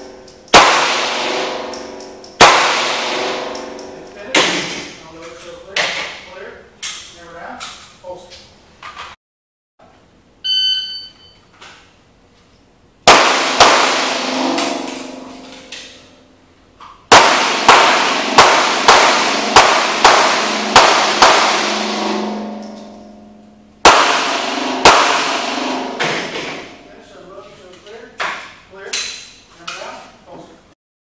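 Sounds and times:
pistol shots with echo: 0:00.0 - 0:04.8, 0:13.0 - 0:15.7, 0:17.1 - 0:22.9, 0:23.8 - 0:26.8
shot timer beep: 0:10.4 - 0:11.4.

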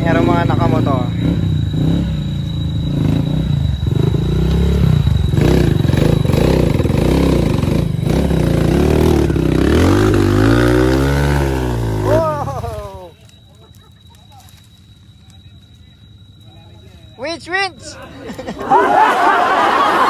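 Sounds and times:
dirt bike engine revving: 0:00.0 - 0:13.1.

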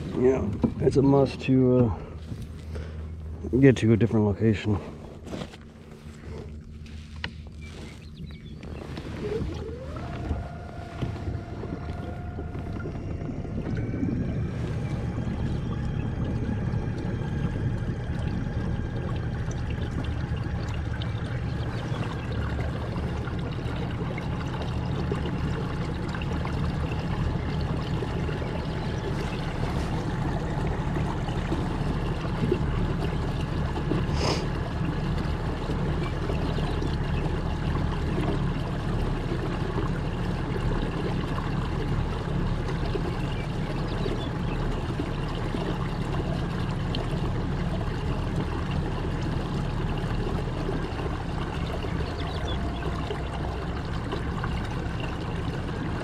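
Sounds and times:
low rumble: 0:00.0 - 0:56.0
water rushing along hull: 0:00.0 - 0:56.0
small motor whining: 0:09.0 - 0:15.1.

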